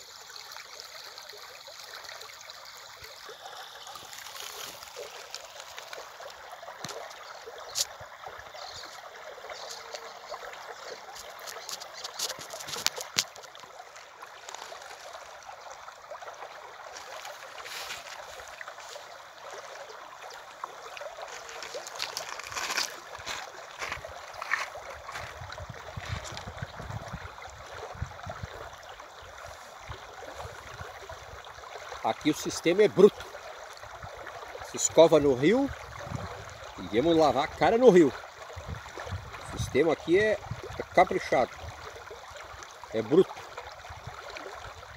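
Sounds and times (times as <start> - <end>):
river water flowing: 0.0 - 44.9.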